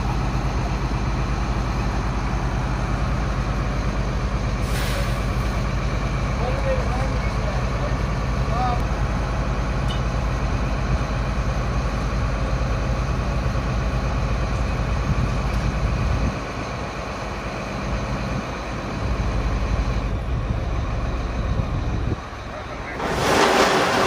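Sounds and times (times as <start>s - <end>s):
heavy diesel engine running: 0.0s - 24.0s
grain rushing noise: 22.8s - 24.0s.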